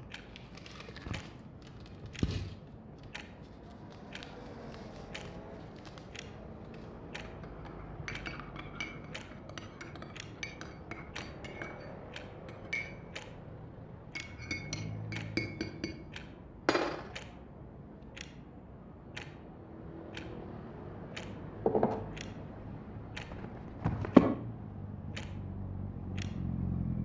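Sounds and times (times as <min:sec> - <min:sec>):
china clinking: 0:07.4 - 0:13.1, 0:14.2 - 0:16.1.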